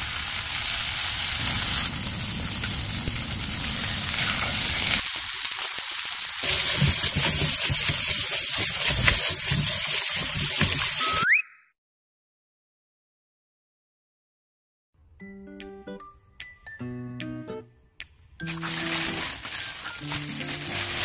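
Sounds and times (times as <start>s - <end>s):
meat sizzling in oil: 0.0s - 11.2s, 18.6s - 21.0s.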